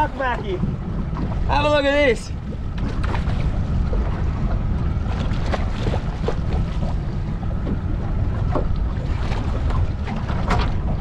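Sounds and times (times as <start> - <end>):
wind buffeting microphone: 0.0 - 11.0
clicks and knocks from boat: 2.4 - 11.0.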